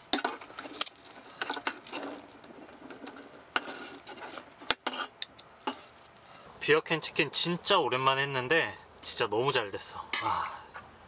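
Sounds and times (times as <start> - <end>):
crisp chicken skin ripping: 0.4 - 3.5.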